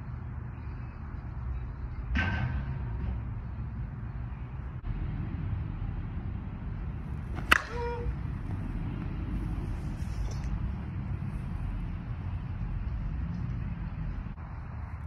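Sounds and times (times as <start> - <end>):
low wind rumble: 0.0 - 15.0
bat hitting softball: 7.1 - 9.0.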